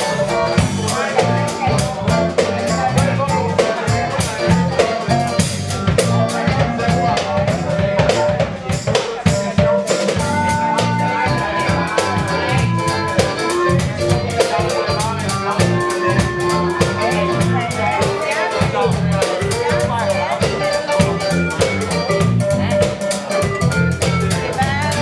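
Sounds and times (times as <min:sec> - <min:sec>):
drum kit with snare and cymbals: 0:00.0 - 0:25.0
electric bass line: 0:00.0 - 0:25.0
guitar: 0:00.0 - 0:25.0
wind instrument holding long notes: 0:09.6 - 0:25.0.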